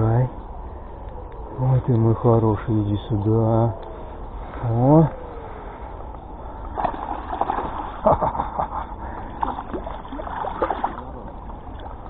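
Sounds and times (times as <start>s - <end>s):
fish thrashing in water: 6.6s - 8.1s, 9.2s - 12.0s
water splashing and sloshing: 6.6s - 12.0s.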